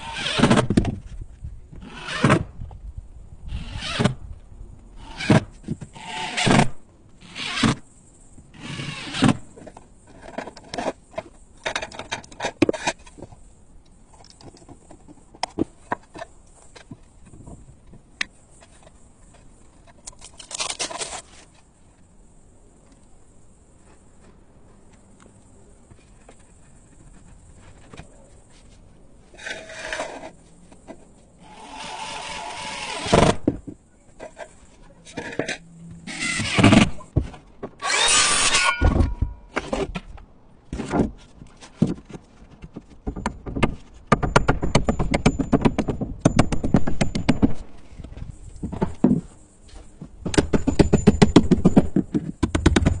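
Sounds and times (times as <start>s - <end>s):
power tool bursts: 37.8s - 38.8s.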